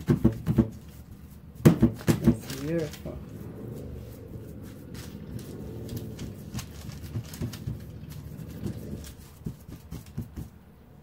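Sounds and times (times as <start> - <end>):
dull thumps: 0.0 - 2.6
hands patting dough: 0.0 - 11.0
paper crinkling: 0.6 - 10.4.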